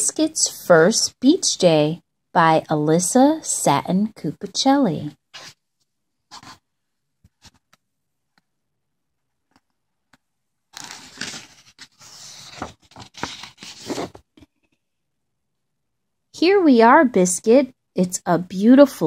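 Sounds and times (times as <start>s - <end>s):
book pages rustling: 5.3s - 6.6s, 7.2s - 7.9s, 9.4s - 14.8s.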